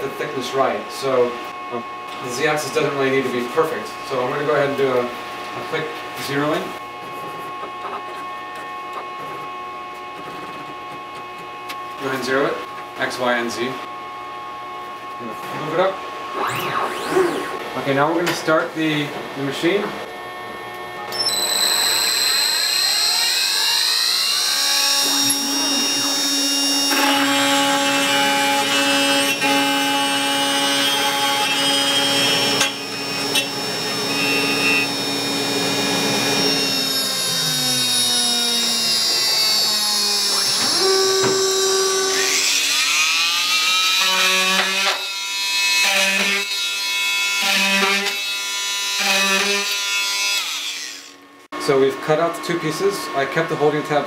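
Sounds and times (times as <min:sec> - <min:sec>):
cnc router whining: 0:15.0 - 0:18.4, 0:19.3 - 0:51.3
short pulses: 0:16.3 - 0:17.9.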